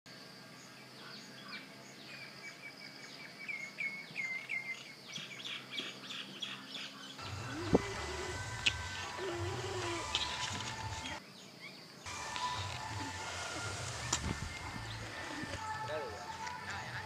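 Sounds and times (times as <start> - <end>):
bird chirping: 0.6 - 17.0
low hum: 7.2 - 11.2.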